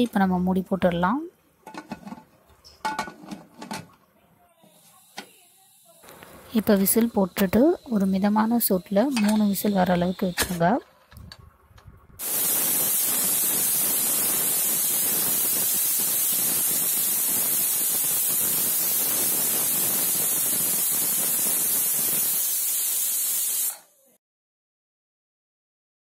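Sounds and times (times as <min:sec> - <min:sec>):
pressure cooker steam hissing: 0:04.6 - 0:10.8, 0:12.2 - 0:24.2.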